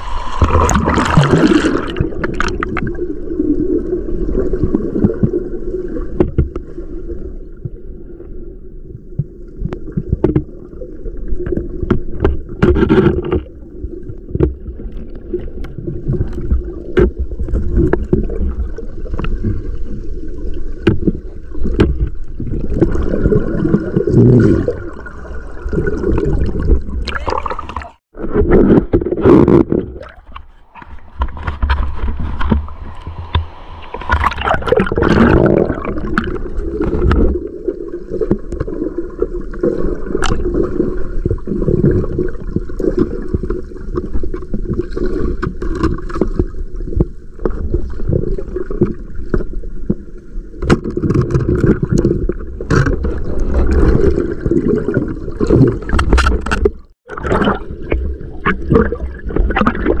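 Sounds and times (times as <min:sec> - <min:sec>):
knocks and scrapes: 0:11.5 - 0:13.5, 0:27.7 - 0:37.4
river water rushing: 0:30.4 - 0:36.1.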